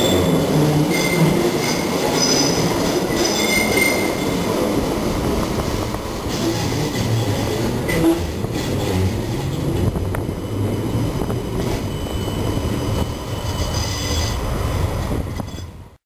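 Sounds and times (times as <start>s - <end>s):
high wheel squeal: 0.0s - 4.4s, 8.8s - 14.4s, 15.4s - 15.8s
tram wheels rumbling: 0.0s - 16.0s.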